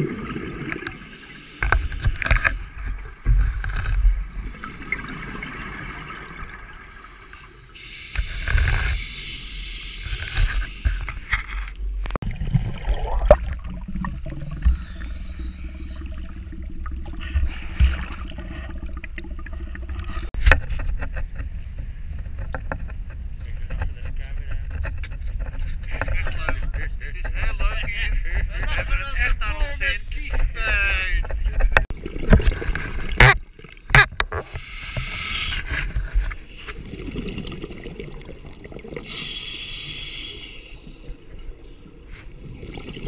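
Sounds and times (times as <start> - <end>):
scuba regulator bubbles: 0.0 - 11.1, 12.2 - 20.3, 31.9 - 43.0.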